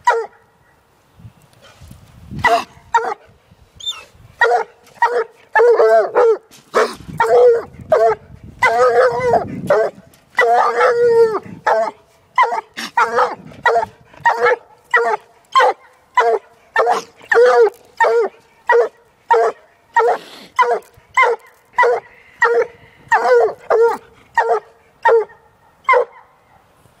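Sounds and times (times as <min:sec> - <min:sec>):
dog barking: 0:04.4 - 0:11.0, 0:11.7 - 0:26.6.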